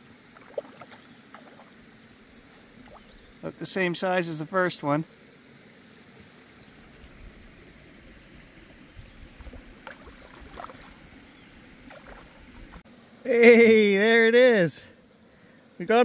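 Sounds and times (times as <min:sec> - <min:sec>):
fish splashing in water: 0:00.2 - 0:01.9, 0:02.7 - 0:03.2, 0:09.3 - 0:12.8.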